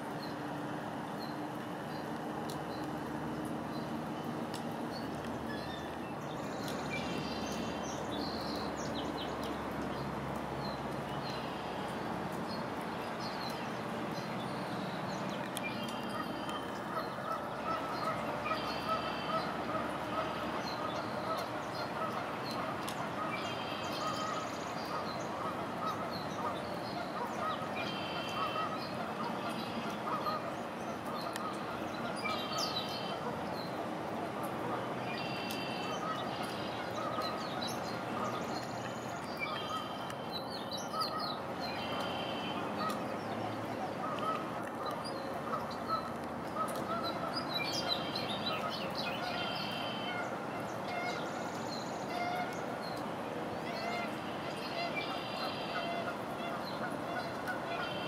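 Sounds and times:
steady rain hiss: 0:00.0 - 0:58.0
birds calling: 0:01.2 - 0:58.0
waterfowl honking: 0:15.8 - 0:33.4, 0:34.3 - 0:51.3, 0:52.0 - 0:53.0, 0:53.6 - 0:58.0.

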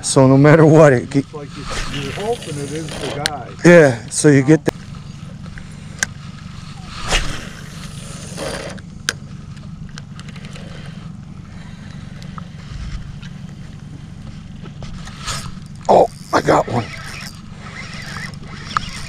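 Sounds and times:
boat motor humming: 0:00.0 - 0:19.0
short swish: 0:06.8 - 0:08.7.

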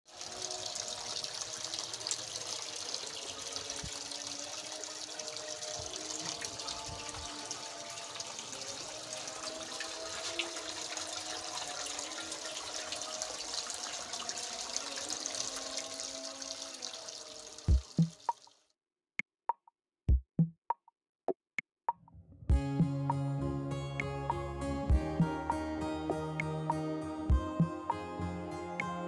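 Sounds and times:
fountain water trickling: 0:00.1 - 0:18.6.

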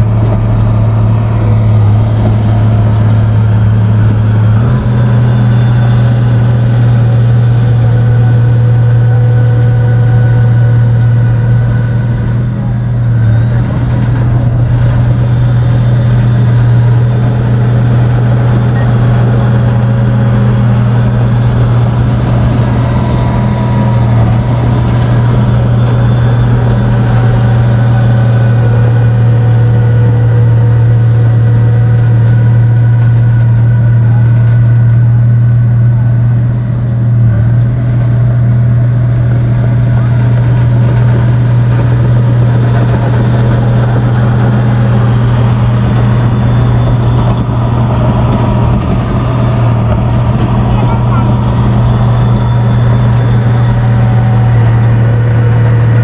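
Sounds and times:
bulldozer diesel engine running: 0:00.0 - 0:56.0.

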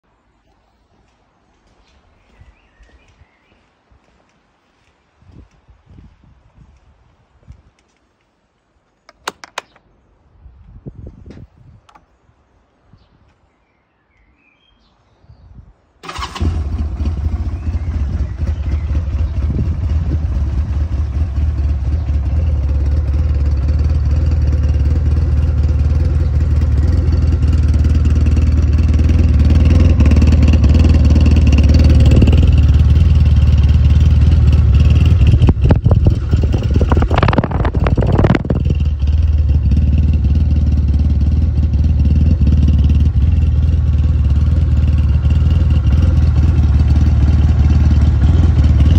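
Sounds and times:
quad engine starting and idling: 0:09.1 - 0:09.8, 0:16.0 - 0:48.9.

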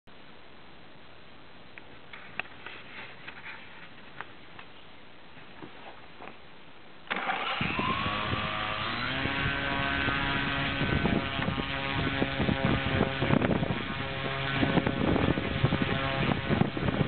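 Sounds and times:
electric motor whine: 0:07.1 - 0:17.0
gusty propeller air rumble: 0:07.2 - 0:17.0.

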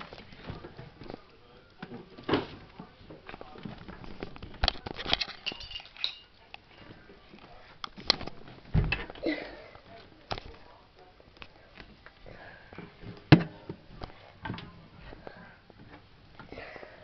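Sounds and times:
small hard objects clattering: 0:04.0 - 0:06.2.

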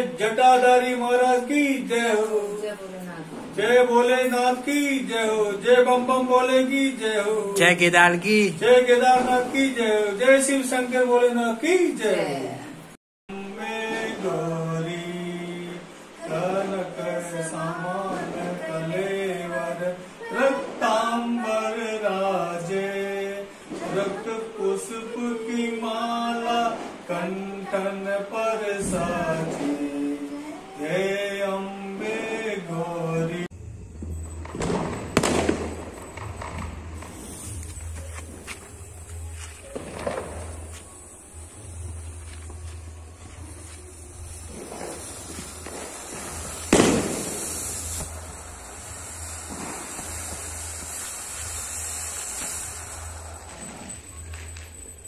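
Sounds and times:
firework fountain hissing: 0:00.0 - 0:12.4, 0:13.3 - 0:55.0
low hum: 0:33.5 - 0:55.0
fuse fizzing: 0:43.5 - 0:54.0
loud bang: 0:45.7 - 0:48.2.

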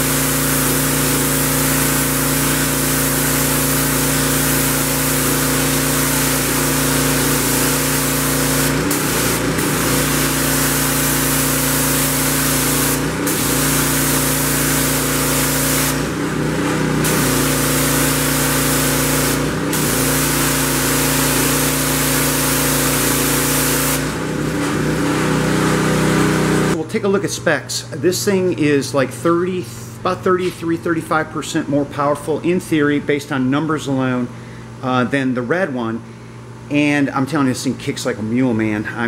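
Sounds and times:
high-pressure spray on concrete: 0:00.0 - 0:26.8
pressure washer engine running: 0:00.0 - 0:26.8.

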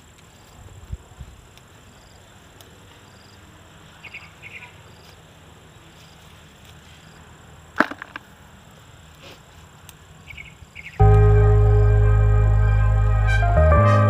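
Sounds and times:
loud guitar music: 0:11.0 - 0:14.0.

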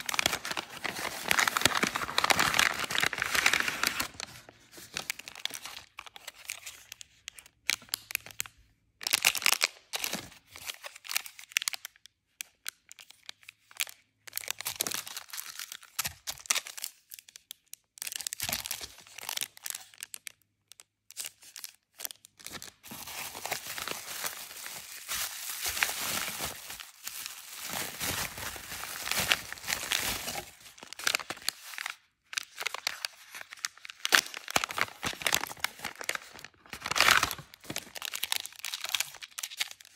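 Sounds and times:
paper bag crinkling: 0:00.0 - 0:04.5, 0:22.5 - 0:31.4
plastic sleeves crinkling: 0:00.0 - 0:12.0, 0:12.9 - 0:39.9.

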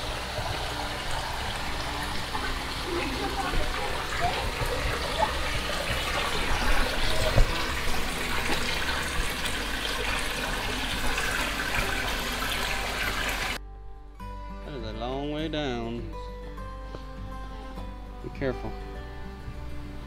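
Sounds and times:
water rushing over rocks: 0:00.0 - 0:13.6
acoustic guitar music: 0:00.0 - 0:20.0.

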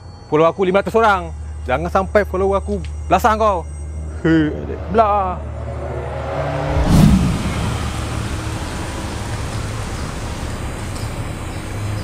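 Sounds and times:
car engine running low: 0:06.2 - 0:12.0.

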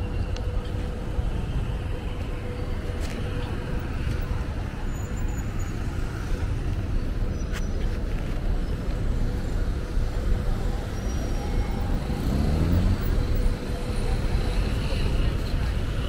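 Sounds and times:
cars passing: 0:00.0 - 0:16.0
vehicle engine accelerating: 0:11.1 - 0:15.2.

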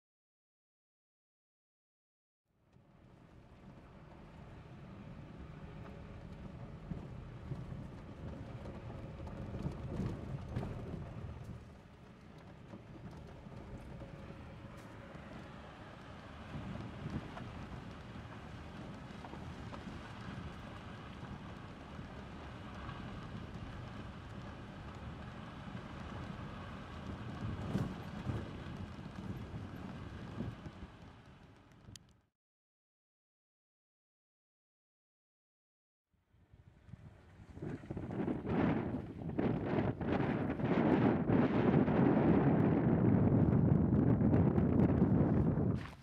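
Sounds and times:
tyres rumbling on gravel road: 0:03.3 - 0:32.0, 0:37.3 - 0:46.0
gravel clicks and rattles: 0:05.8 - 0:32.2, 0:37.5 - 0:46.0
wind buffeting microphone: 0:06.3 - 0:32.0, 0:36.5 - 0:46.0.

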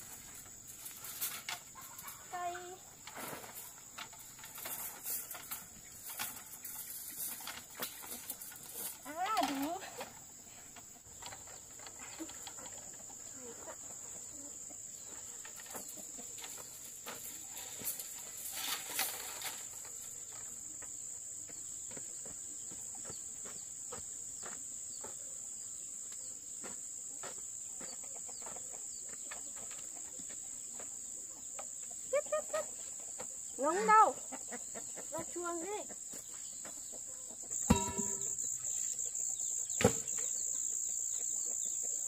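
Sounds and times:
rustling: 0:00.0 - 0:10.1, 0:15.1 - 0:20.4
insects droning: 0:00.0 - 0:42.0.

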